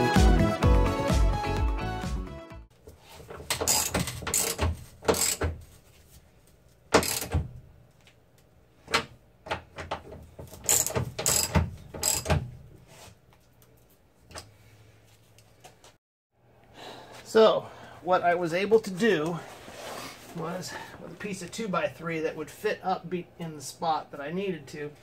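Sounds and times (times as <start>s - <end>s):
ratchet wrench clicking: 3.6s - 5.5s, 7.0s - 7.4s, 10.6s - 12.4s.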